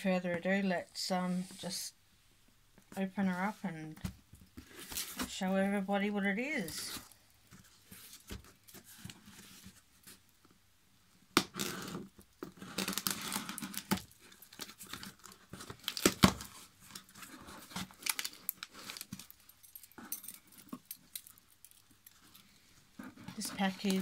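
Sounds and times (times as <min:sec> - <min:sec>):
tape and cardboard ripping: 0:11.4 - 0:19.3.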